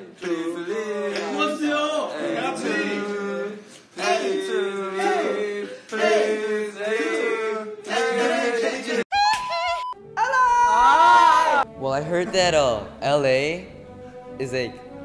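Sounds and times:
young men singing together: 0.0s - 9.0s.

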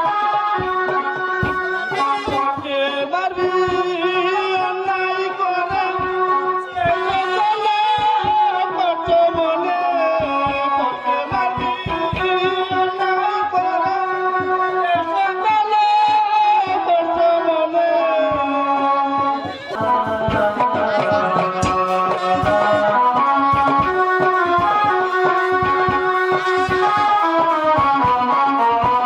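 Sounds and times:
hand drums quick beat: 0.3s - 17.3s, 18.3s - 29.0s
melodic instrument sliding line: 0.8s - 2.9s, 19.3s - 27.6s.

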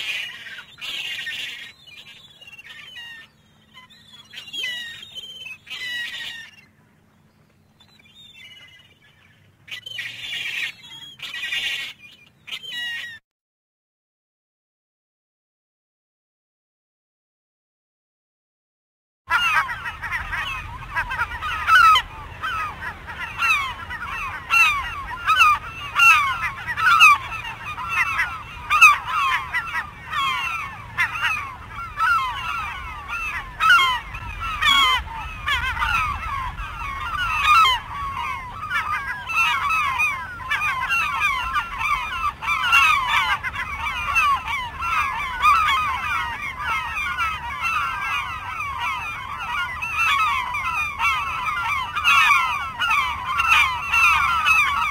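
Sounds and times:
gulls calling: 0.0s - 13.2s, 19.3s - 54.9s.

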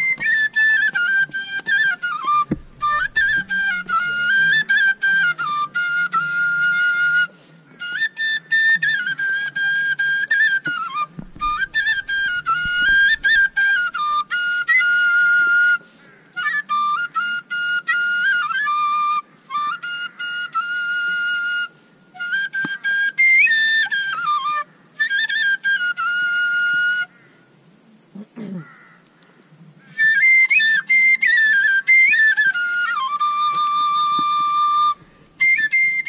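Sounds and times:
side-blown flute melody: 0.0s - 27.2s, 29.9s - 36.0s.

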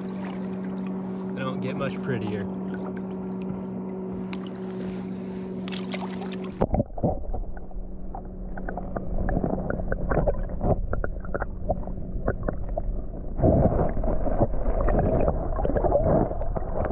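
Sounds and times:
underwater sloshing and gurgling: 0.0s - 16.9s
small underwater clicks and pops: 5.6s - 12.8s.

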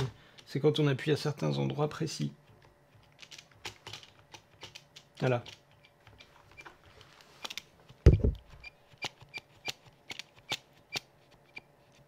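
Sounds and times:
keyboard thump: 8.0s - 8.5s.

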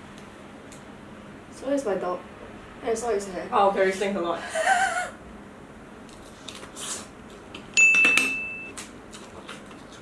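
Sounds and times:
bright metallic ding: 7.8s - 8.7s.

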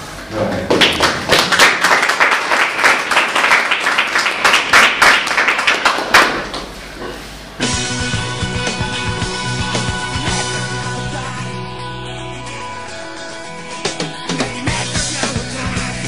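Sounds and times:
audience applauding: 0.5s - 6.8s.

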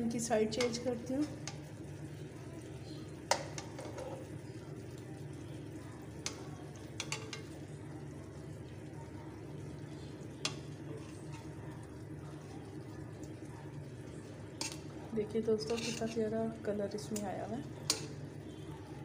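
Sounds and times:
metal utensil clinking on pan: 7.0s - 7.5s, 14.6s - 14.8s, 15.6s - 16.2s, 17.1s - 18.2s.

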